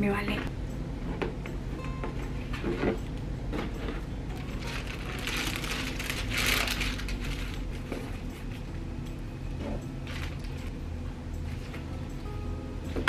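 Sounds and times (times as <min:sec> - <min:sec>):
packaging rustling and crinkling: 0:03.6 - 0:08.6, 0:10.0 - 0:10.8.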